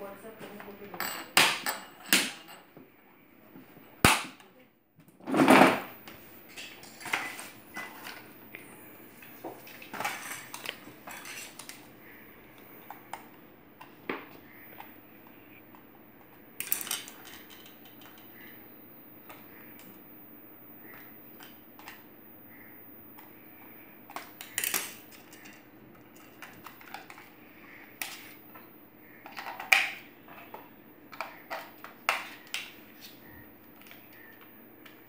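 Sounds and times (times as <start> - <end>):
sharp plastic crack: 4.0 - 4.5
plastic parts clattering: 9.7 - 11.8, 16.6 - 18.3, 24.1 - 27.3, 29.2 - 32.7
hard plastic parts clicking and rattling: 16.6 - 18.3.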